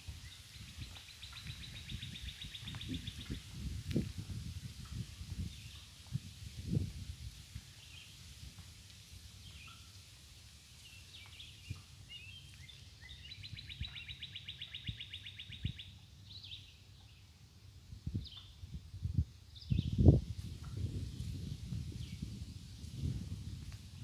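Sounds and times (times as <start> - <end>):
songbirds chirping: 0.0 - 24.0.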